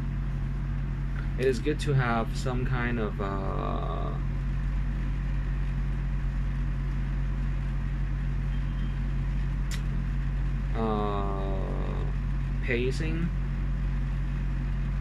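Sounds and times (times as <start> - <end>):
low room hum: 0.0 - 15.0
man speaking: 1.4 - 4.3, 10.8 - 13.4
sharp click: 9.7 - 10.0.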